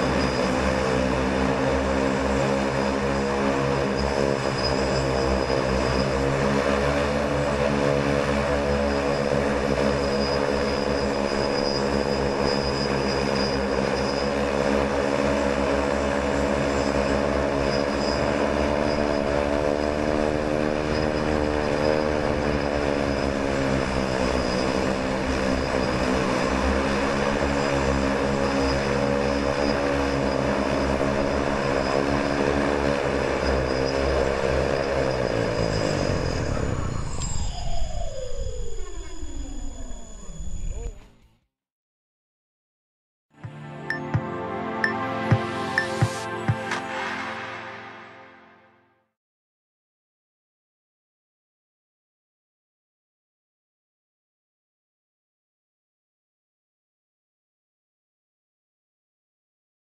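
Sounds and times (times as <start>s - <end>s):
drone of spinning propellers: 0.0s - 41.0s.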